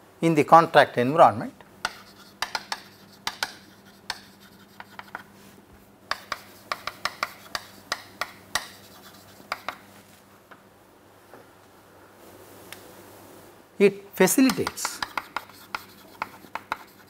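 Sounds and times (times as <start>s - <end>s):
chalk tapping and scratching on board: 1.8s - 5.3s, 6.1s - 9.9s, 14.4s - 17.0s.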